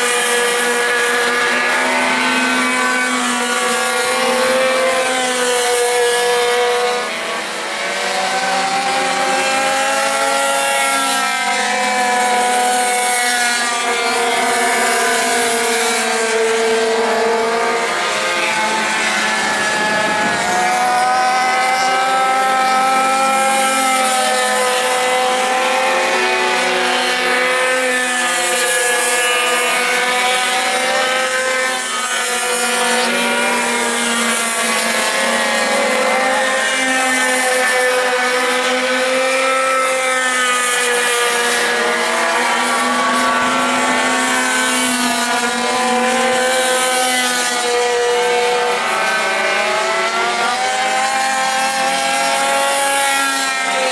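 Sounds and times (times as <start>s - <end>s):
small two-stroke engines racing: 0.0s - 53.9s.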